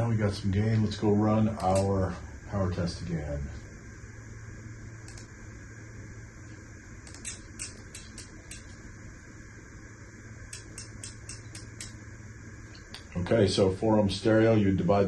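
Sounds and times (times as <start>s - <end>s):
low equipment hum: 0.0s - 15.0s
faint sharp clicks: 5.0s - 5.3s.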